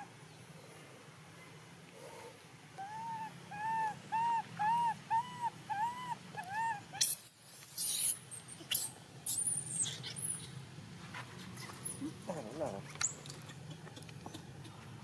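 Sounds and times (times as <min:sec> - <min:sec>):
baby monkey whimpering calls: 0:02.8 - 0:10.4.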